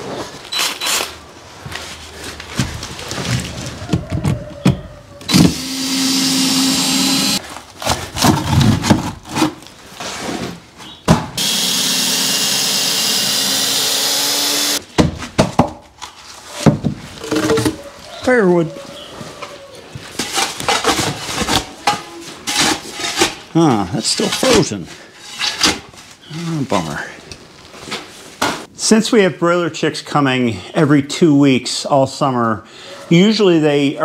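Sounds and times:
power tool motor humming: 5.3 - 7.4, 11.4 - 14.8.

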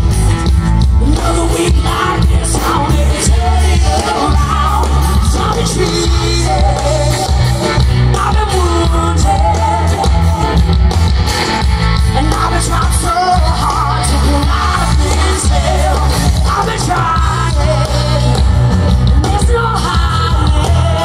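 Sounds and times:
live rock band playing: 0.0 - 21.0
woman singing: 19.2 - 21.0.

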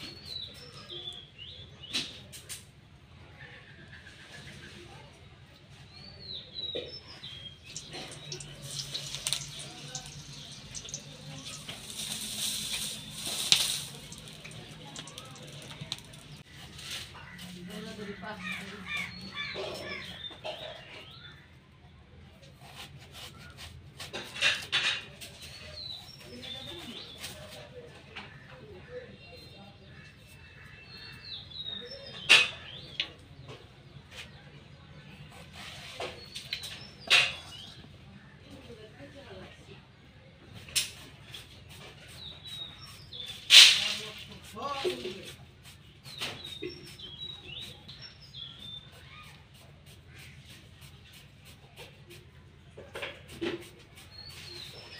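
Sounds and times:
food frying in hot oil: 7.7 - 16.4
sharp crack: 43.5 - 44.3.

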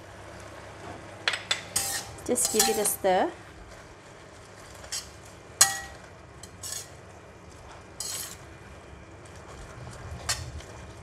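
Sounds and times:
metal spatula clanking on wok: 1.3 - 3.1, 4.9 - 6.9, 8.0 - 8.4.

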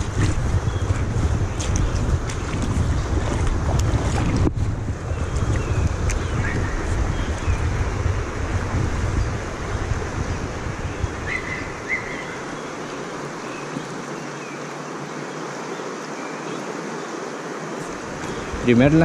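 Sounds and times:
wind buffeting microphone: 0.0 - 13.4, 17.8 - 19.0
river rushing over stones: 0.0 - 19.0.

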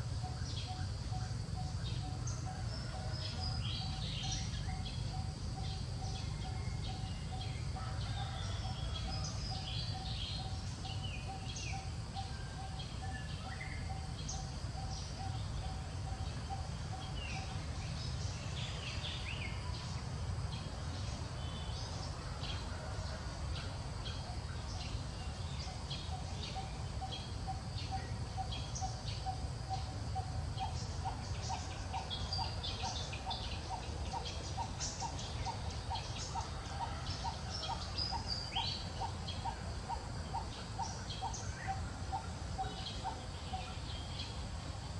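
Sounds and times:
small birds chirping: 24.2 - 44.9.

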